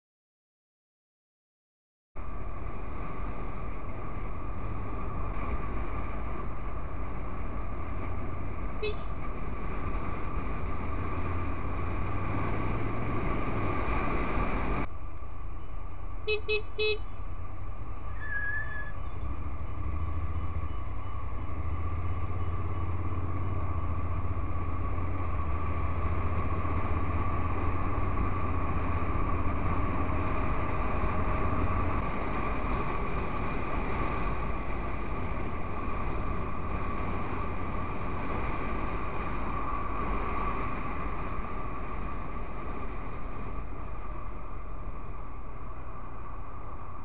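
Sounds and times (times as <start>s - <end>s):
road noise: 2.2s - 47.0s
motorcycle engine running: 16.3s - 47.0s.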